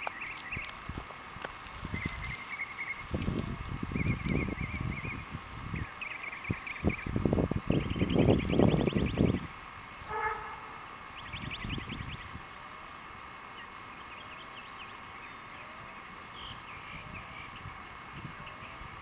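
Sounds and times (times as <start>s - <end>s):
faint hiss: 0.0s - 19.0s
wind puff on microphone: 3.0s - 5.9s, 6.5s - 12.5s
short pitched call: 10.1s - 10.9s.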